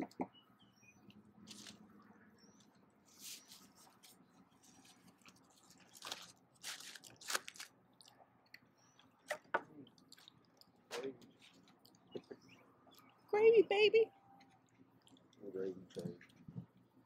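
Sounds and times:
aluminium foil crinkling: 1.4 - 1.8, 3.4 - 7.8.

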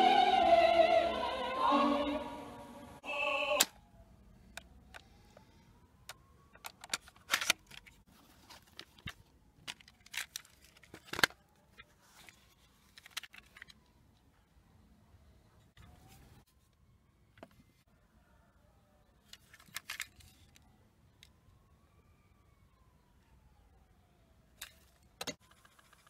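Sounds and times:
opera singing from cassette: 0.0 - 3.7
plastic cassette case clicks: 6.1 - 7.9, 8.8 - 11.4.

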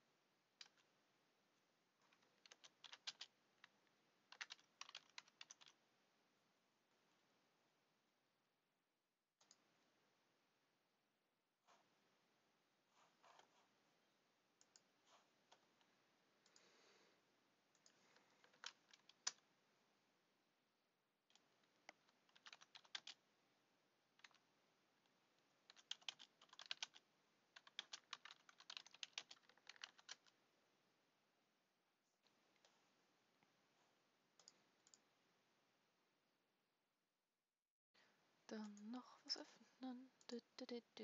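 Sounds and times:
faint keyboard typing: 0.5 - 1.0, 1.9 - 5.8, 9.4 - 9.7, 13.0 - 13.8, 14.6 - 17.0, 17.7 - 19.5, 21.2 - 23.2, 24.1 - 30.4, 34.3 - 35.1, 38.6 - 39.5.

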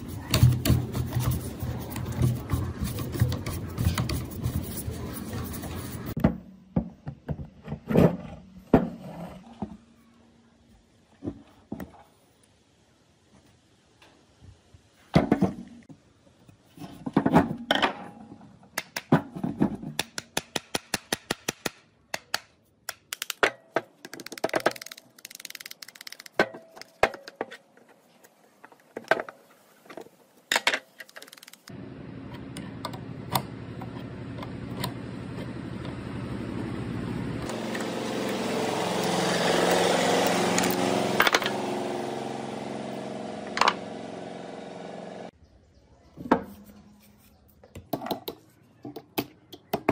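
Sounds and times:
screwdriver and metal parts clicking: 20.3 - 27.0, 30.5 - 31.7
engine-like drone: 31.7 - 45.3.

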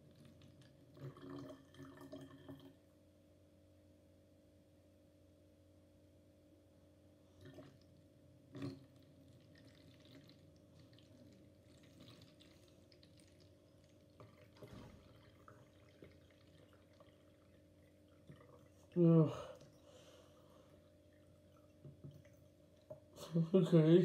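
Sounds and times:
liquid trickling into a bottle: 0.0 - 2.8, 7.3 - 23.2.

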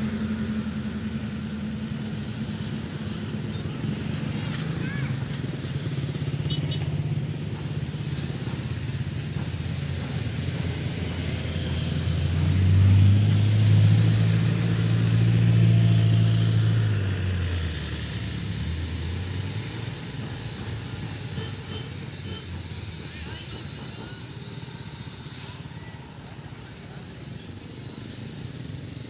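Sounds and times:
motorcycle passing: 0.0 - 9.4.

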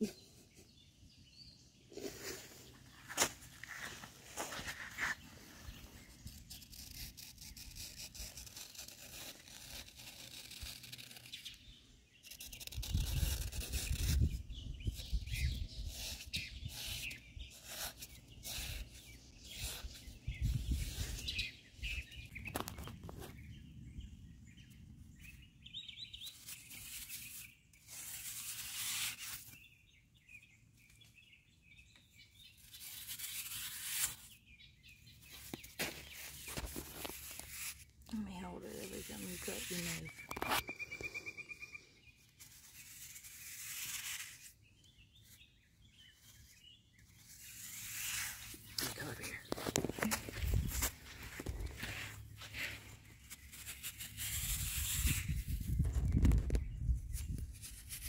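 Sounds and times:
blade scraping through damp sand: 2.0 - 11.6, 15.0 - 21.5, 26.2 - 29.6, 32.6 - 34.4, 35.2 - 40.8, 41.6 - 44.6, 46.1 - 56.3.

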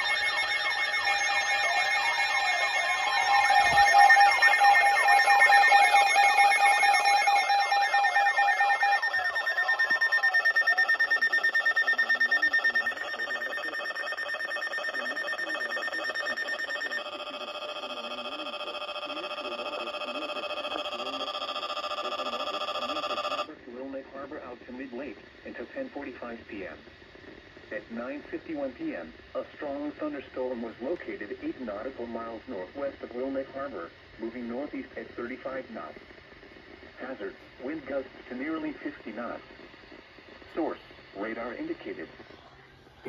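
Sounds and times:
pulsing alarm tones: 0.0 - 23.5
weather radio alarm tones: 0.0 - 23.5.

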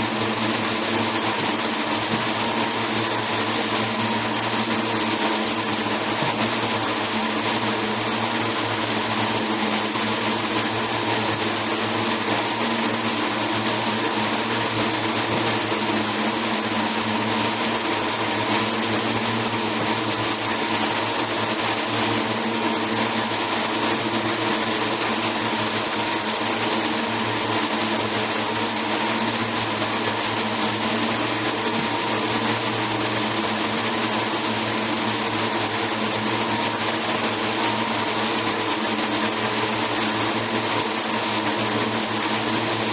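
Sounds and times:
yarn machines whirring: 0.0 - 42.9.

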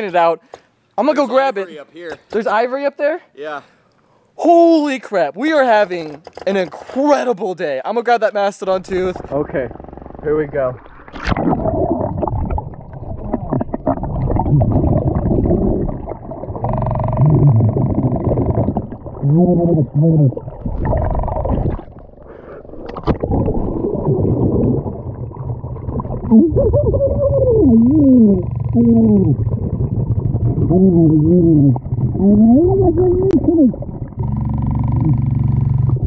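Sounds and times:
underwater rushing and bubbling: 8.9 - 34.3
sharp knocks underwater: 22.8 - 26.3.

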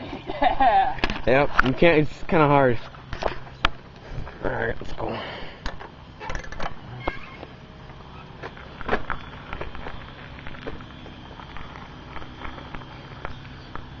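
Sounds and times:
bicycle rattling over gravel: 6.1 - 14.0.

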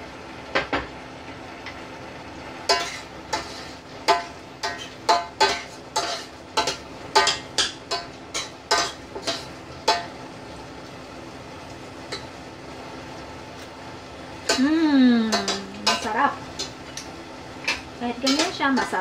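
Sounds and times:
low steady hum: 0.0 - 19.0
utensil clinking against saucepan: 4.1 - 10.1, 15.3 - 19.0.

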